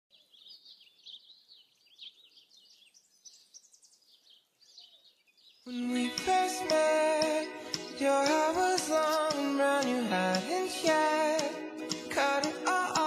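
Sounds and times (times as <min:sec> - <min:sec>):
small birds chirping: 0:00.1 - 0:13.0
music: 0:05.7 - 0:13.0.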